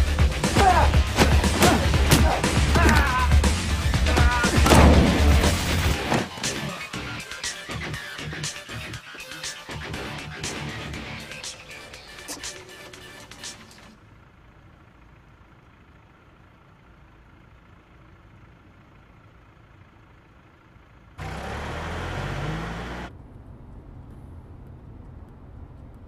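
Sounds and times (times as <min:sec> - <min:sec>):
car cabin rumble: 0:00.0 - 0:06.8
engine rush with rising note: 0:21.2 - 0:26.0.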